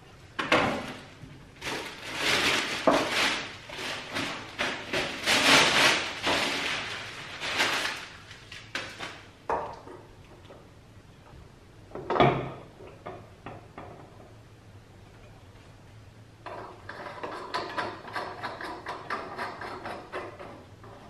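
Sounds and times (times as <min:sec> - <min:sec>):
plastic packaging crinkling: 0:00.8 - 0:09.4.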